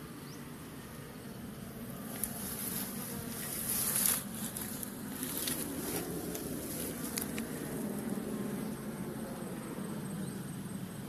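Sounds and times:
honeybees buzzing: 0.0 - 11.0
rustling scraping noises: 2.1 - 7.6.

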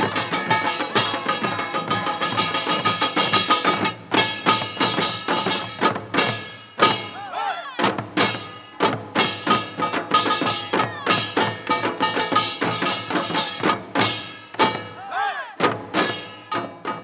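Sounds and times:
hourglass drums: 7.9 - 15.0.

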